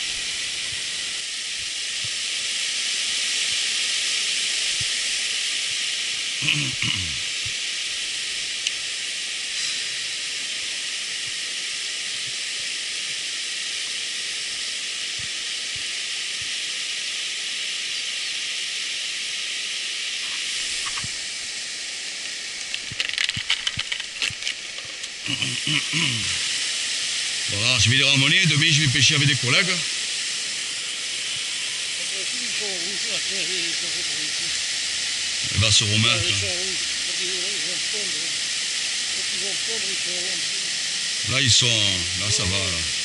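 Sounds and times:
river water rushing over weir: 0:19.7 - 0:43.0.

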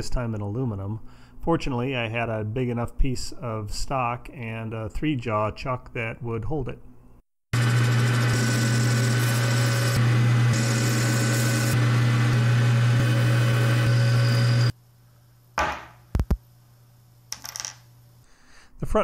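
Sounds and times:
metal lathe running: 0:07.6 - 0:14.7.

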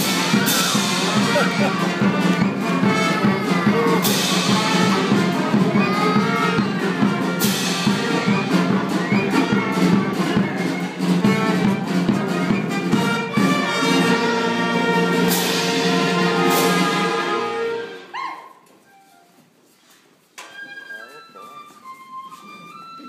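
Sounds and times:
lively brass instrumental music: 0:00.0 - 0:18.2.

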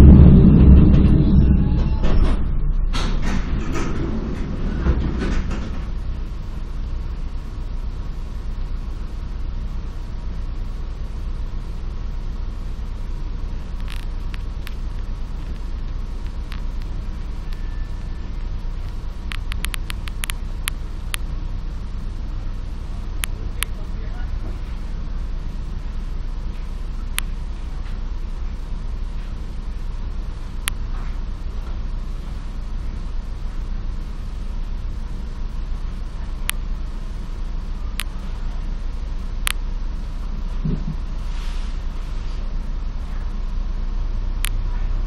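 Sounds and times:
electric train low hum: 0:00.0 - 0:45.0
sharp clicks: 0:18.8 - 0:21.3.

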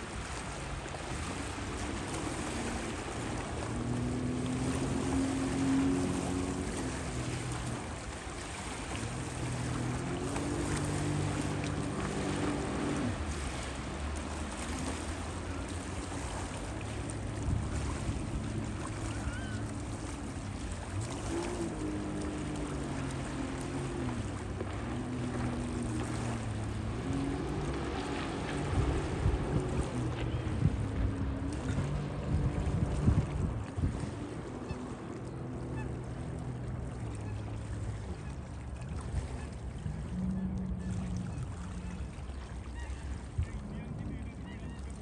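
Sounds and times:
wind gusts on microphone: 0:00.0 - 0:34.5
jet ski engine: 0:00.0 - 0:45.0
water wash: 0:00.0 - 0:45.0.

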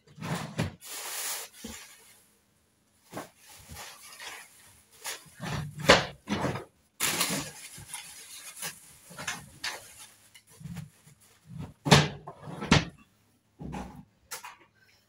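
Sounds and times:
cleaning items knocking and clattering: 0:00.0 - 0:02.0, 0:03.1 - 0:13.0.

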